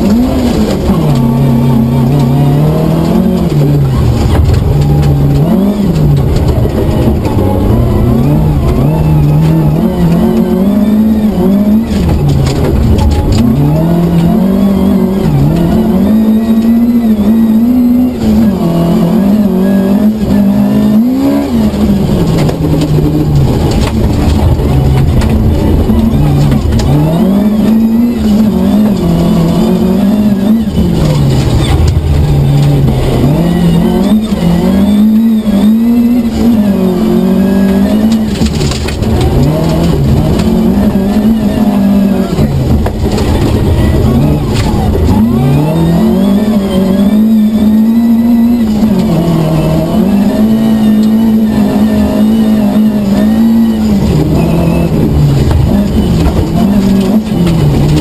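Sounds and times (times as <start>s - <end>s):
rally car engine revving: 0.0s - 58.0s.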